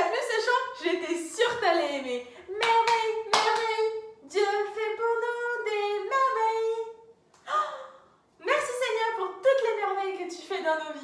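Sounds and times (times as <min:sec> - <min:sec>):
woman singing: 0:00.0 - 0:07.8
hand clap: 0:02.6 - 0:03.8.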